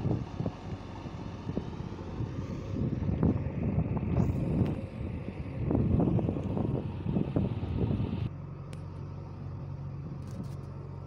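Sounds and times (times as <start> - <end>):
wind rumble on microphone: 0.0 - 8.3
distant diesel engine working: 0.0 - 11.0.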